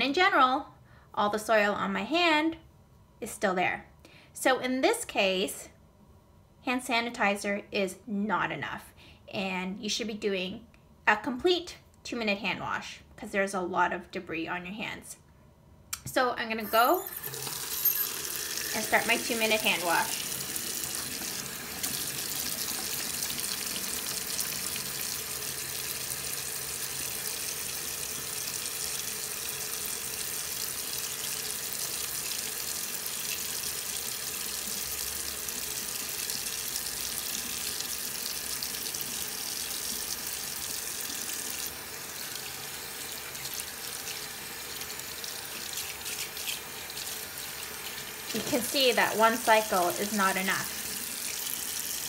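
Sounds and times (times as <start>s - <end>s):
tap water running into sink: 17.0s - 52.0s.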